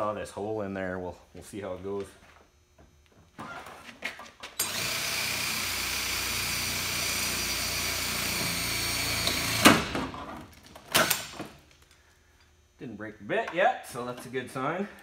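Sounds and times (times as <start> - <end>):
drill hole saw cutting plastic: 4.6 - 9.8.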